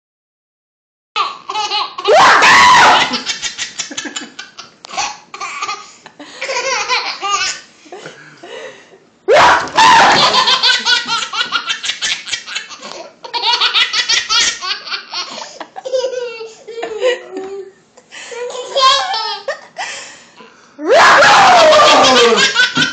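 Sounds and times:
baby laughing: 0:01.2 - 0:02.2, 0:02.8 - 0:07.7, 0:09.8 - 0:17.6, 0:18.4 - 0:19.7, 0:21.8 - 0:22.9.

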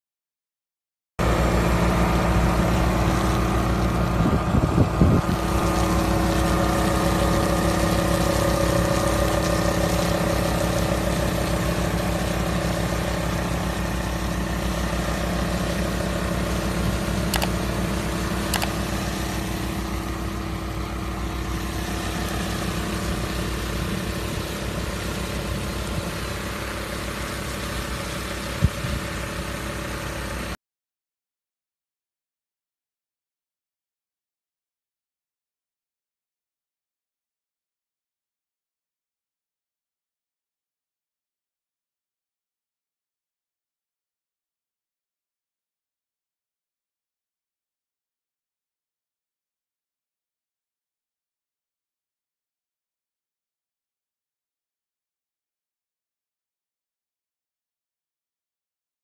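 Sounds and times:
tractor engine running: 0:01.2 - 0:30.5
light clicks: 0:17.4 - 0:17.6.

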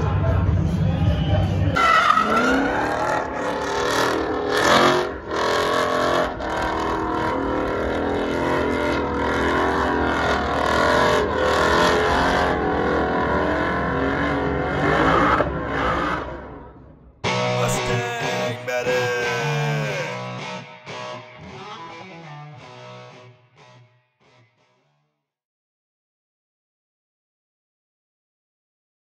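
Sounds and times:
car engine revving hard: 0:02.0 - 0:16.6.

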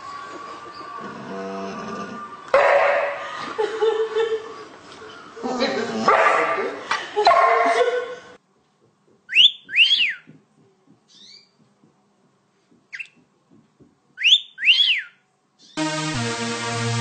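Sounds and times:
wolf whistle: 0:09.3 - 0:10.3, 0:14.2 - 0:15.2.

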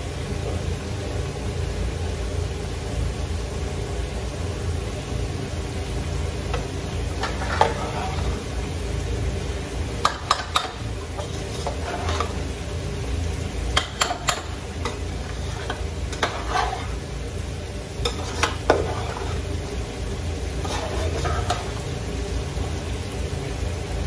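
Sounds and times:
metal spoon scraping a pot: 0:06.5 - 0:08.5, 0:10.0 - 0:12.5, 0:13.7 - 0:17.1, 0:18.0 - 0:19.7, 0:20.6 - 0:21.9.

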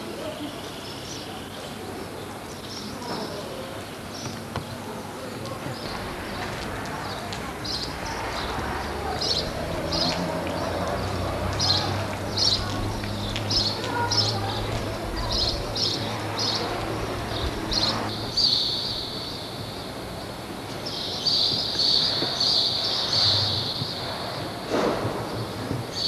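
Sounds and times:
birds chirping: 0:05.6 - 0:24.0.

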